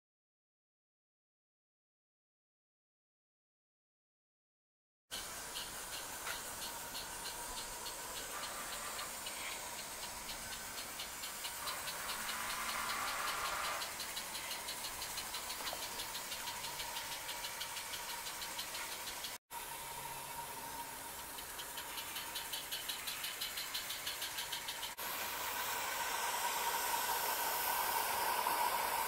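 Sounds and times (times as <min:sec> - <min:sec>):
model steam locomotive chuffing: 0:05.1 - 0:29.0
steam hiss: 0:05.1 - 0:29.0.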